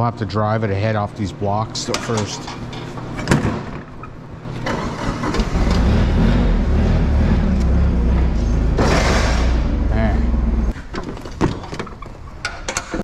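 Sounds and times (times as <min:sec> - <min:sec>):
forklift engine starting and idling: 0:04.5 - 0:10.7.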